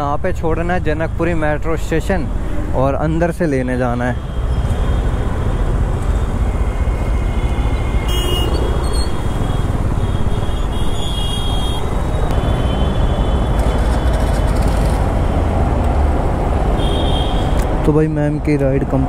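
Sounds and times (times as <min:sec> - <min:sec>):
vehicle horns tooting: 0:06.8 - 0:14.0, 0:16.8 - 0:17.6.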